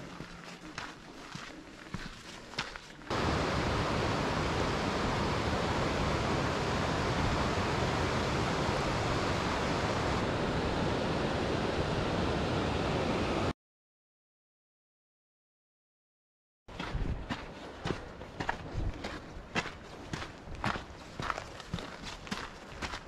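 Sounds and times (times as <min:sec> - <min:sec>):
waterfall rushing: 0:03.1 - 0:13.4.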